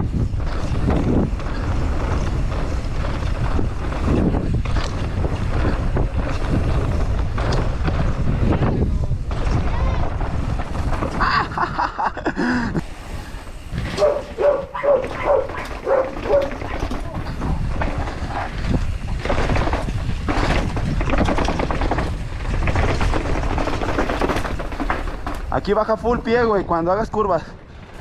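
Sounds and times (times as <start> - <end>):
bike rattling over ground: 0.0 - 28.0
wind buffeting microphone: 0.0 - 28.0
dog barking: 14.0 - 16.9.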